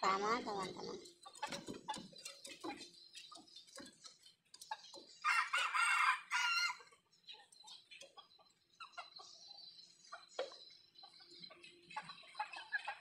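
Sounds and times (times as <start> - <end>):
soft chicken clucks: 0.0 - 13.0
small scratching knocks: 1.2 - 5.2
rooster crowing: 5.2 - 6.8.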